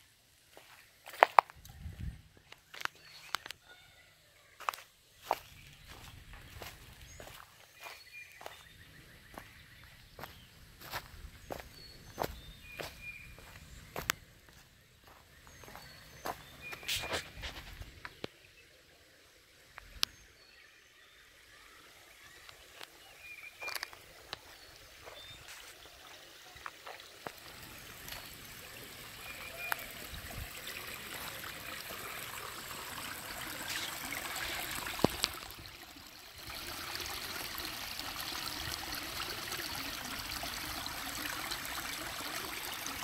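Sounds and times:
footsteps on leaves and rocks: 0:00.5 - 0:01.6, 0:04.6 - 0:18.0, 0:23.6 - 0:25.8
brook babbling over stones: 0:04.6 - 0:43.0.

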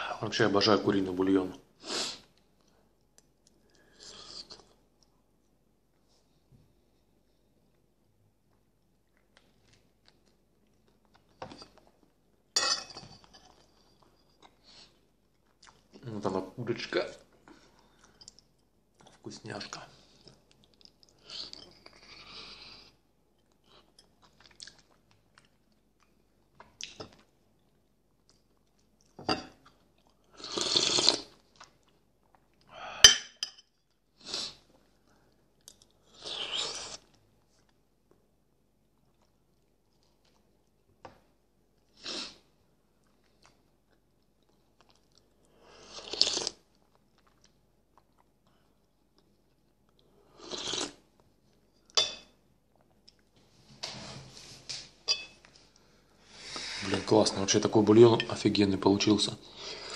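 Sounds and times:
quiet chewing: 0:07.3 - 0:12.2, 0:13.5 - 0:16.0, 0:17.4 - 0:30.4, 0:31.0 - 0:32.7, 0:38.8 - 0:41.0, 0:42.9 - 0:52.0
person slurping broth from spoon: 0:50.3 - 0:51.0
spoon clinking against dish: 0:55.1 - 0:55.4.

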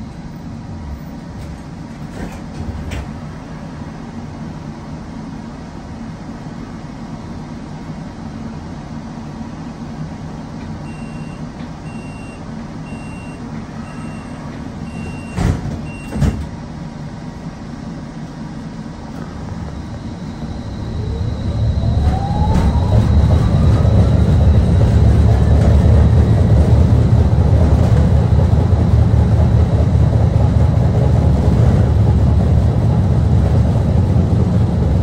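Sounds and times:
streetcar humming: 0:00.0 - 0:35.0
short high beeps: 0:10.9 - 0:16.1
doors closing thuds: 0:15.0 - 0:16.6
traction motors whining: 0:19.1 - 0:26.6.

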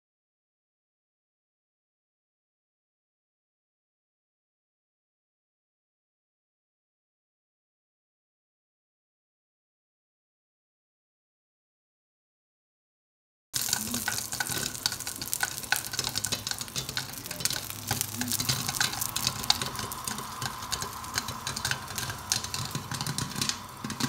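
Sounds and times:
faint steady whine: 0:13.6 - 0:24.0
popcorn popping and sizzling: 0:13.6 - 0:24.0.

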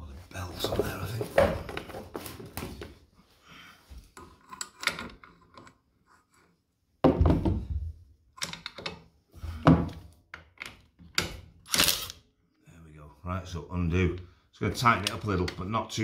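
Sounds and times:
metal parts clunking: 0:10.5 - 0:12.2.

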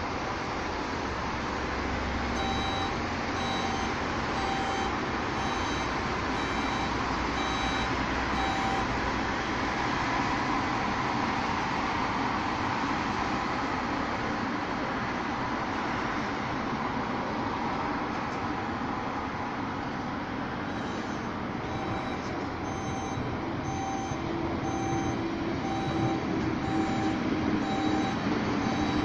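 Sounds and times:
reversing alarm beeping: 0:02.4 - 0:09.6, 0:20.6 - 0:29.0
garbage truck engine running: 0:20.2 - 0:29.0.

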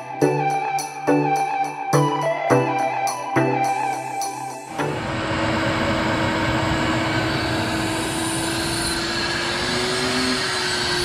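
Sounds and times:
shop vacuum running: 0:04.6 - 0:11.0.

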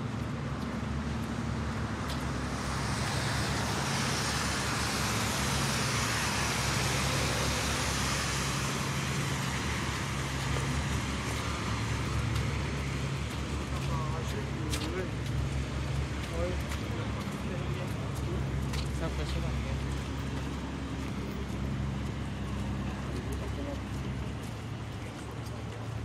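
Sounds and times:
car tyres hissing on wet road: 0:01.8 - 0:16.5.

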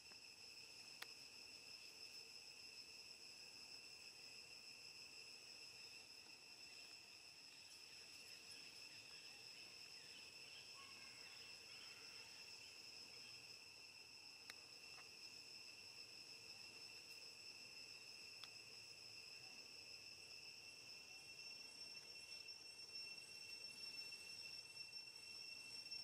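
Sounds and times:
insects droning: 0:00.0 - 0:26.0
faint clicks: 0:00.9 - 0:01.1, 0:14.4 - 0:15.1, 0:18.4 - 0:18.6.

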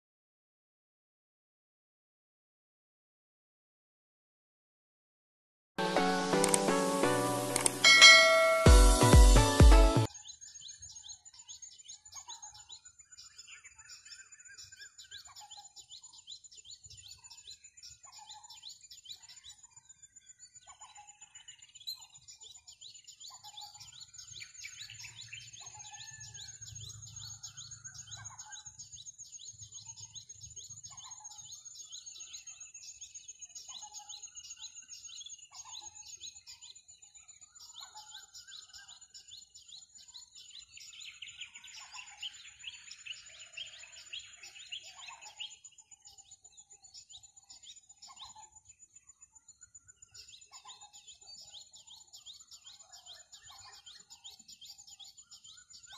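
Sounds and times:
steady high-pitched tone: 0:07.8 - 0:09.4
small birds chirping: 0:10.0 - 0:55.9.

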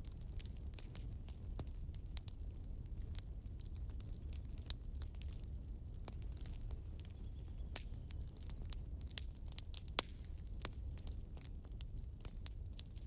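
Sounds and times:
fire crackling and popping: 0:00.0 - 0:13.0
low fire rumble: 0:00.0 - 0:13.0.

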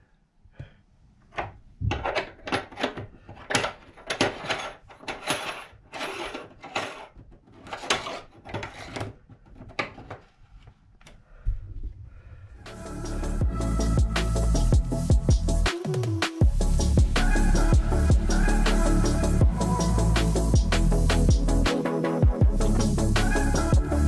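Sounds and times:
rubber gasket scraping and rubbing: 0:03.3 - 0:10.4.

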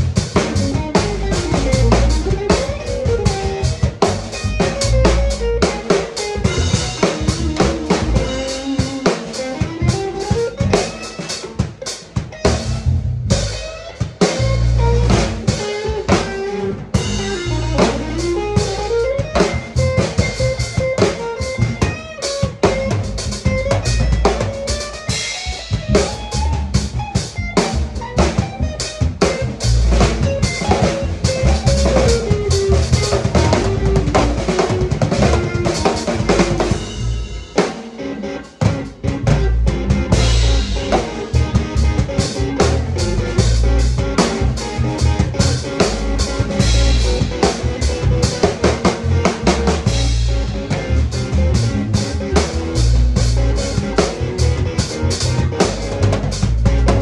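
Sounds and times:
drum kit playing: 0:00.0 - 0:57.0
electric guitar melody: 0:00.0 - 0:57.0.

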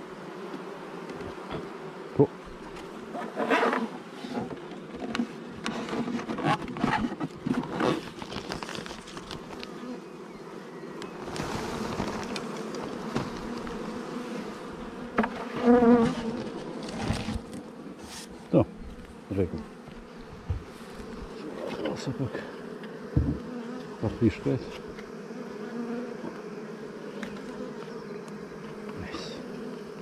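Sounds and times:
bees buzzing: 0:00.0 - 0:30.0
knocks and rustles of hive parts: 0:02.4 - 0:09.8, 0:11.0 - 0:14.5, 0:15.1 - 0:19.2, 0:19.8 - 0:22.1, 0:22.8 - 0:23.9.

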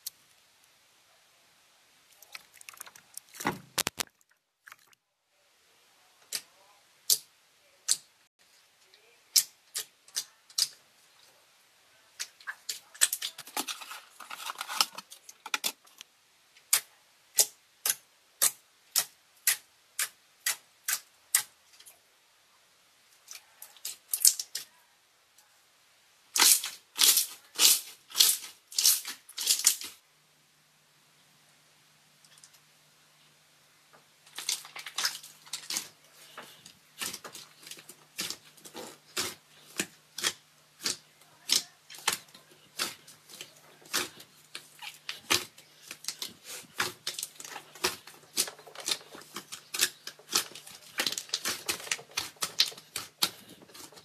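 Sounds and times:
heavy slime squelch: 0:34.3 - 0:54.0.

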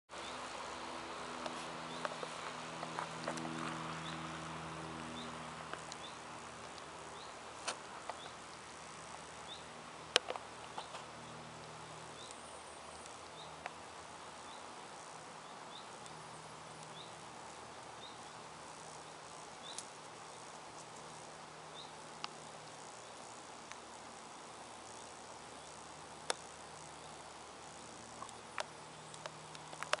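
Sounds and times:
faint steady hiss: 0:00.1 - 0:30.0
low hum: 0:00.2 - 0:19.7.

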